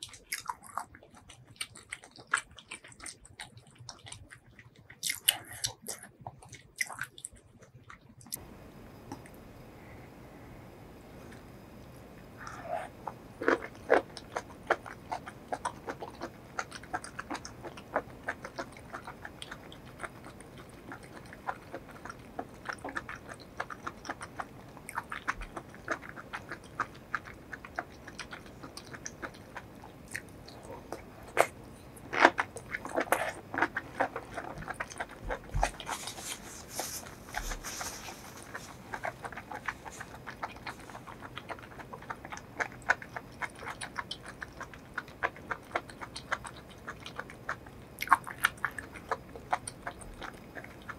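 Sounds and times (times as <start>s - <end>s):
chewing with mouth clicks: 0.0s - 8.5s, 11.2s - 50.9s
tissue rustling: 35.7s - 39.0s.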